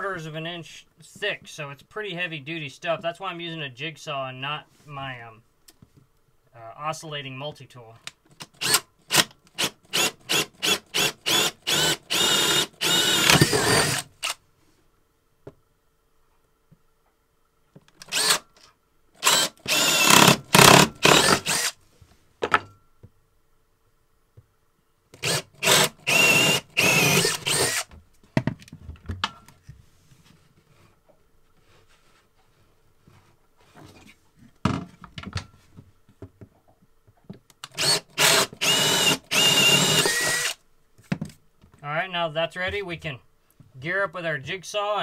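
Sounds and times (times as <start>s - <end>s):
cordless drill boring: 8.6s - 14.4s, 18.0s - 18.4s, 19.2s - 21.8s, 25.2s - 27.9s, 37.7s - 40.6s.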